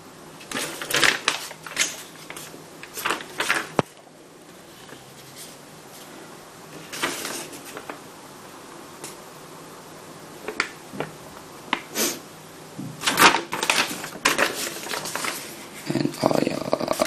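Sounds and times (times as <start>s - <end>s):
paper sheet rustling and crinkling: 0.4s - 8.1s, 13.0s - 15.8s.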